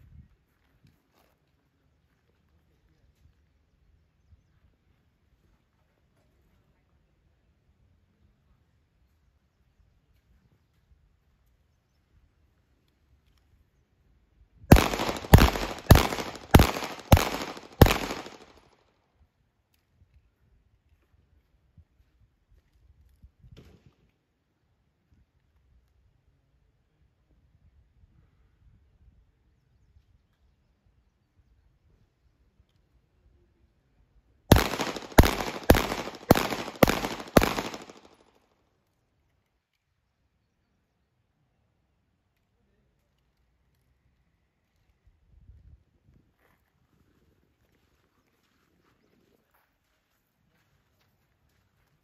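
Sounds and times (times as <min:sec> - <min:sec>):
handgun shots with echo: 0:14.7 - 0:18.6, 0:34.5 - 0:38.2.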